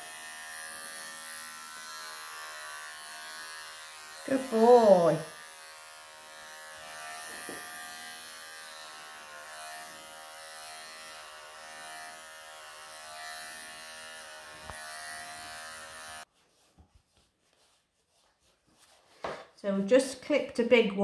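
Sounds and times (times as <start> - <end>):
electric clippers buzzing: 0.0 - 16.3.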